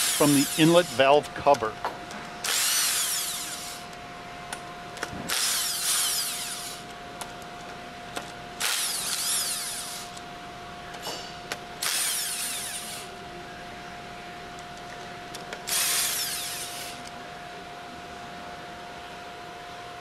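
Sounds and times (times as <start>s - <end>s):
impact wrench bursts: 0.0s - 1.1s, 2.4s - 3.9s, 5.3s - 6.9s, 8.6s - 10.2s, 11.8s - 13.1s, 15.7s - 17.1s.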